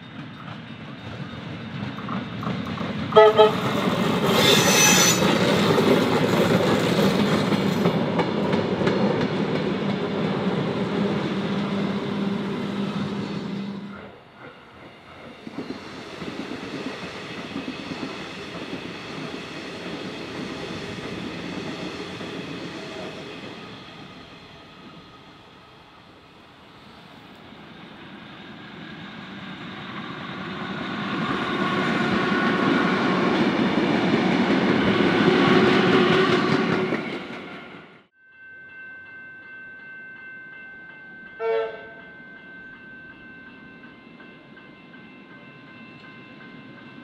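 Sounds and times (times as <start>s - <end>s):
train running on rails: 0.0s - 47.0s
train horn toots: 3.1s - 3.8s, 4.4s - 5.3s, 11.6s - 14.2s, 41.4s - 42.0s.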